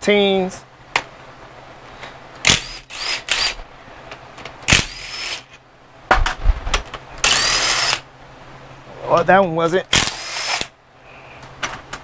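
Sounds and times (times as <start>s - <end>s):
cordless impact wrench whining: 2.4s - 3.6s, 4.7s - 5.6s, 7.2s - 8.0s, 9.9s - 10.7s.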